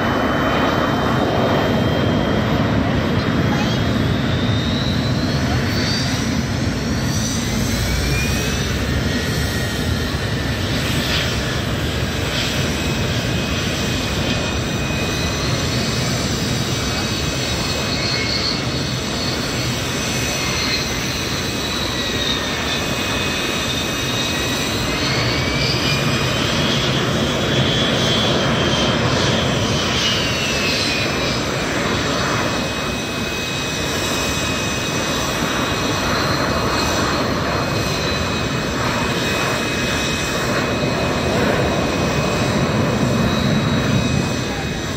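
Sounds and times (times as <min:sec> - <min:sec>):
jet engine rumble: 0:00.0 - 0:44.9
jet turbine whines: 0:00.0 - 0:44.9.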